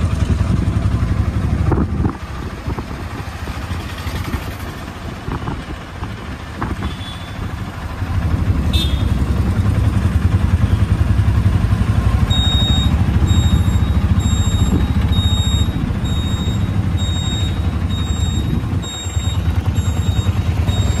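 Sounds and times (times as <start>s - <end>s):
auto-rickshaw engine throbbing: 0.0s - 21.0s
high electronic beep: 12.2s - 21.0s.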